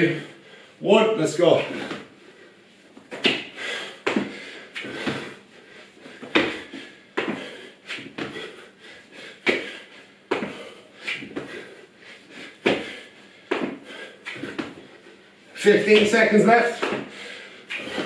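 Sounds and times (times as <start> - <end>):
thuds of feet and hands on tiles: 2.9 - 5.4, 6.0 - 8.6, 9.3 - 11.7, 12.3 - 15.0, 16.0 - 18.0.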